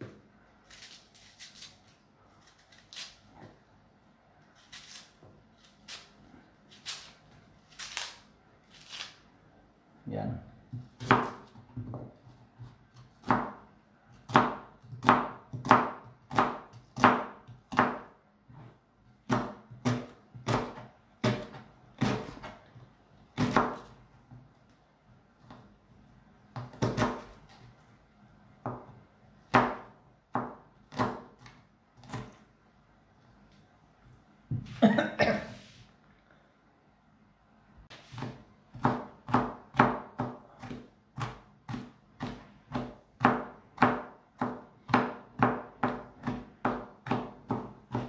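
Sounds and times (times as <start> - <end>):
knife chopping on cutting board: 10.7 - 13.6, 14.2 - 18.7, 19.3 - 22.6, 23.4 - 24.0, 26.5 - 27.7, 28.6 - 32.4, 37.9 - 48.0.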